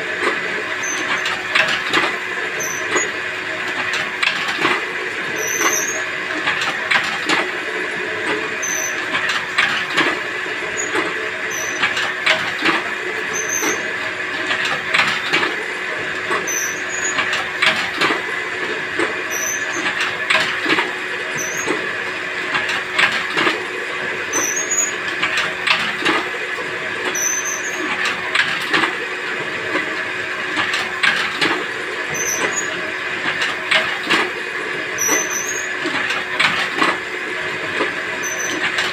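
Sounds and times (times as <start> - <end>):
machine motor hum: 0.0 - 38.9.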